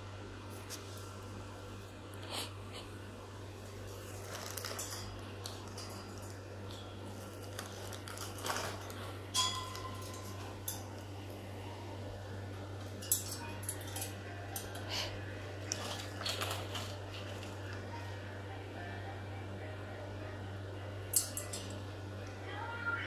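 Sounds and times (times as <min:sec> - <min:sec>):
steady low hum: 0:00.0 - 0:23.0
parrot claws tapping metal bars: 0:09.3 - 0:10.9, 0:13.0 - 0:14.8.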